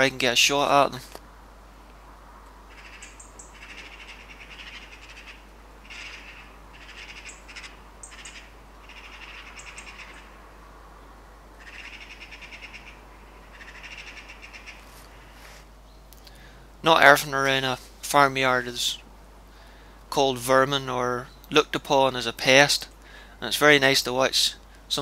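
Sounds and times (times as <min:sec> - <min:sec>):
birds chattering in alarm: 0:02.6 - 0:10.5, 0:11.5 - 0:16.6.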